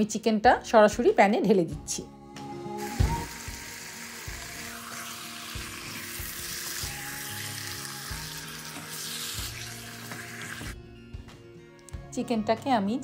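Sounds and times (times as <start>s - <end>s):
chicken sizzling in oil: 2.8s - 10.8s.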